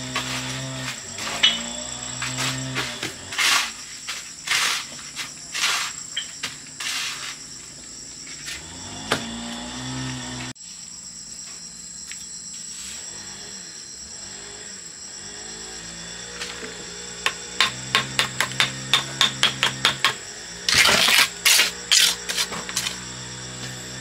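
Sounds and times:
insects trilling: 0.0 - 24.0
rasping strokes: 20.7 - 24.0.

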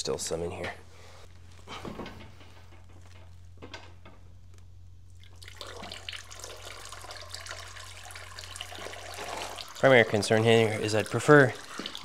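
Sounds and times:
fluid pouring onto plastic sheeting: 5.4 - 12.0.

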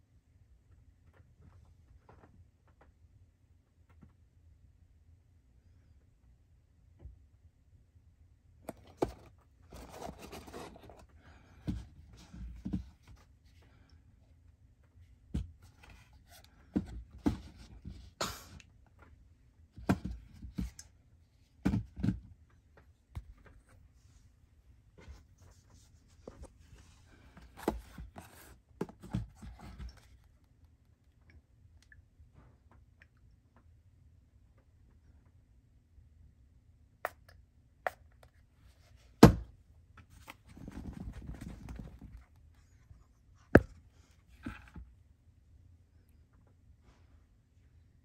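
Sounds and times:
cardboard rustling: 8.7 - 13.2, 25.0 - 30.2, 40.1 - 42.2.

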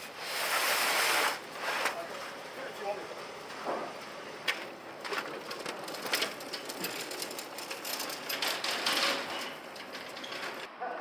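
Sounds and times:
hand cart rattling on concrete: 4.5 - 10.7.

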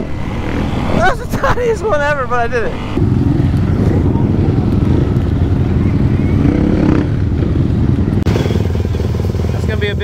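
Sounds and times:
motorcycle engine running: 3.0 - 10.0.

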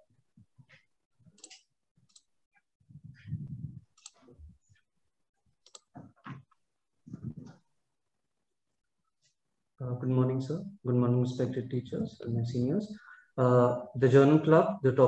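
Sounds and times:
computer mouse clicks: 1.4 - 2.3, 5.6 - 5.9.

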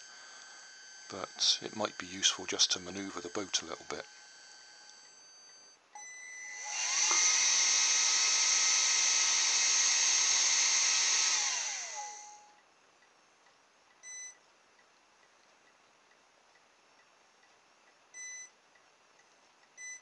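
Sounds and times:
hair dryer fan whirring: 6.5 - 12.5.

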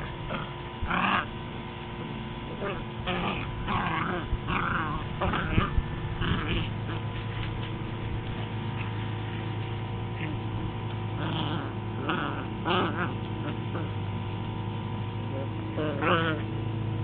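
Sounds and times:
electrical hum: 0.0 - 17.0
puppies yelping and whining: 2.6 - 7.1, 11.2 - 14.0, 15.8 - 16.5.

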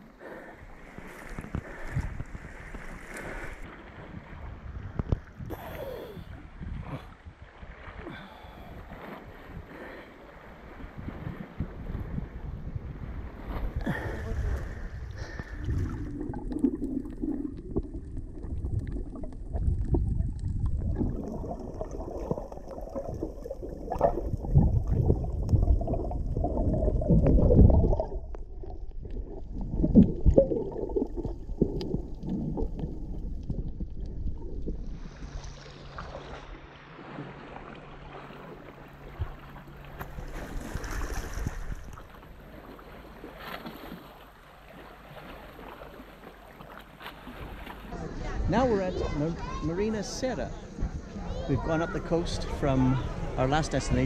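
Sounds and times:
sea water lapping: 0.0 - 54.0
underwater sloshing and rumbling: 0.0 - 54.0.

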